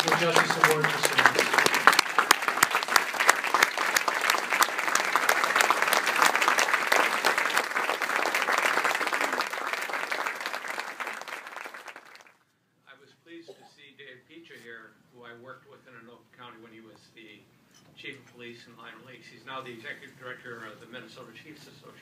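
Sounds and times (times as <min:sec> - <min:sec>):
large audience applauding: 0:00.0 - 0:12.4.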